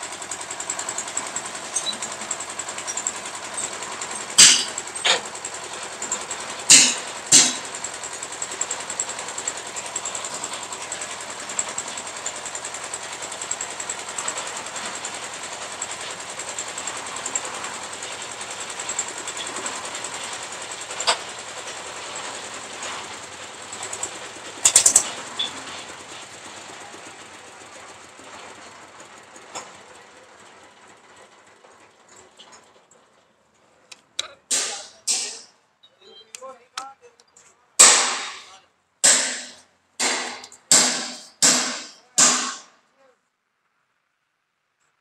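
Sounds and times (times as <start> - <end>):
mixer machine running: 0.0 - 32.1
sharp knocks: 6.7 - 7.7, 34.2 - 35.4, 37.8 - 42.7.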